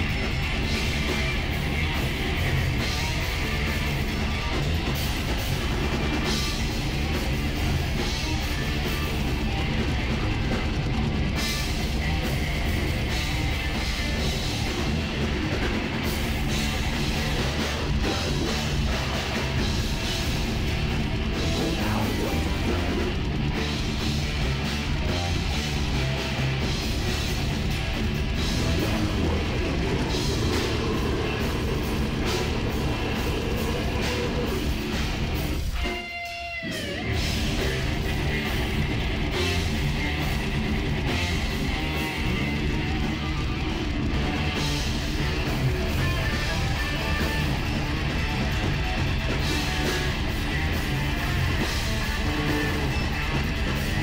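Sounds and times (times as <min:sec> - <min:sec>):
metal band playing: 0:00.0 - 0:54.0.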